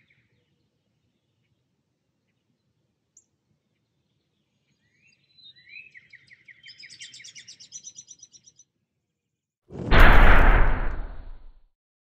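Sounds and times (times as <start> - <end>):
low outdoor background noise: 0.0 - 5.4.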